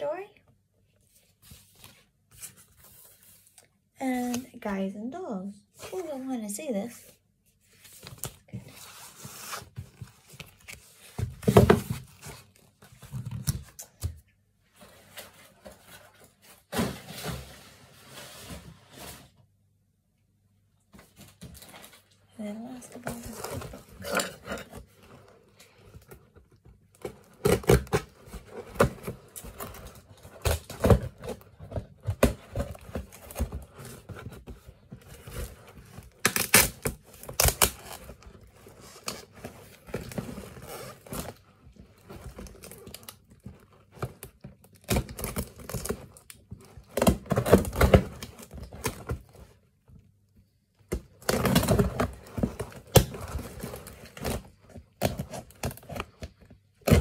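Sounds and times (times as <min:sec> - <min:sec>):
packing tape tearing: 0:36.0 - 0:38.2.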